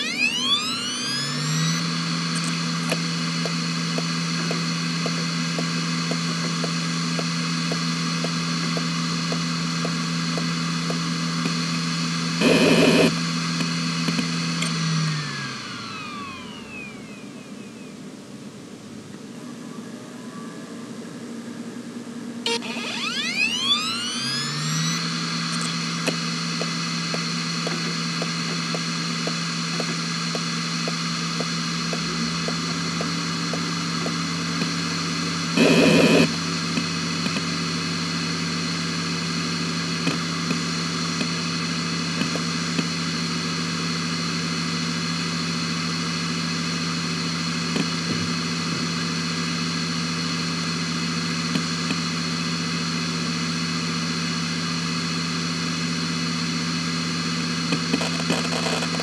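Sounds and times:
loud buzz: 0.0s - 18.0s, 22.4s - 42.3s
hard drive hum and whine: 0.0s - 59.0s
hard drive seek clicks: 57.7s - 59.0s.

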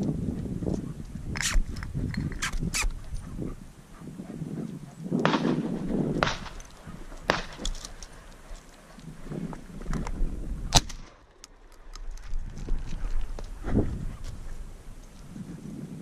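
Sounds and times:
shotgun shot: 5.2s - 6.6s, 7.3s - 7.8s.

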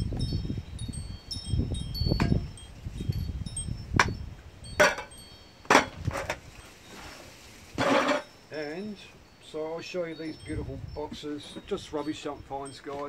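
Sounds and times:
wind rumble on microphone: 0.0s - 6.6s, 10.2s - 12.6s
wind chimes tinkling: 0.0s - 13.0s.

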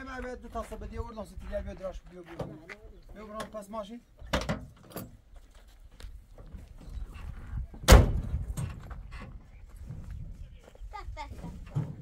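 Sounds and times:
heavy thump: 7.8s - 9.0s.

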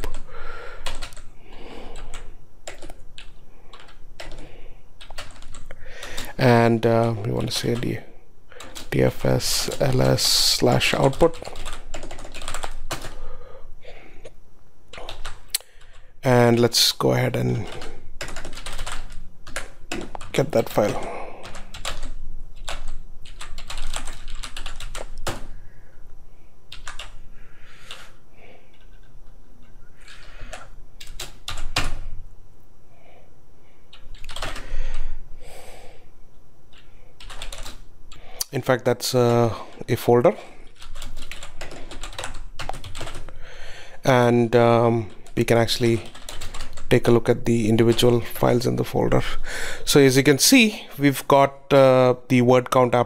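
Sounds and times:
computer keyboard typing: 0.0s - 6.4s, 7.0s - 8.0s, 8.6s - 13.3s, 14.9s - 16.0s, 17.4s - 25.5s, 26.7s - 27.2s, 28.7s - 29.2s, 30.0s - 32.0s, 33.9s - 34.7s, 36.7s - 38.2s, 40.6s - 43.4s, 45.0s - 48.2s
keyboard typing clicks: 33.9s - 34.6s.

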